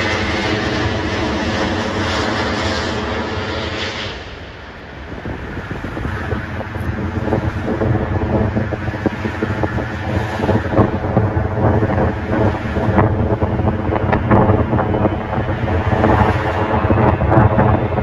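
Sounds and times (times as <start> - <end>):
jet airliner roar: 0.0 - 18.0
jet engines rumbling: 0.0 - 18.0
wind buffeting microphone: 0.0 - 18.0.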